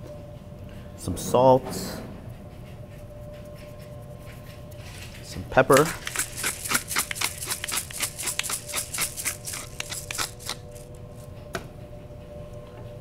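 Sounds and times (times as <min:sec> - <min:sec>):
pepper mill grinding clicks: 0:05.7 - 0:11.0.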